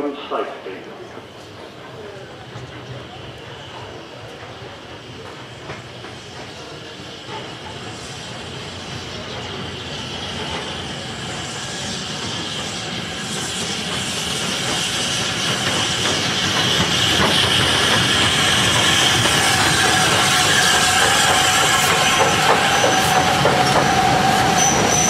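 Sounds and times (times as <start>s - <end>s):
steam train rumble and hiss: 0.0s - 25.0s
high brake squeal: 16.8s - 25.0s.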